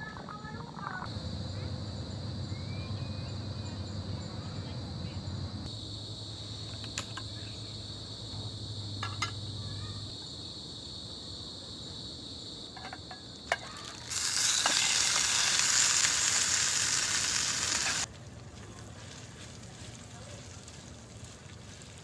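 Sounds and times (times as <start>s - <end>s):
meat sizzling in a pan: 13.7s - 22.0s.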